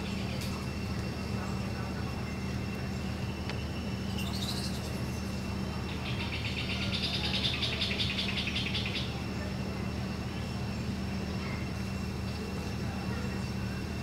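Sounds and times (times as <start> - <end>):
steady low hum: 0.0 - 14.0
bird rattling trill: 4.0 - 5.4
bird chirping: 4.0 - 9.2.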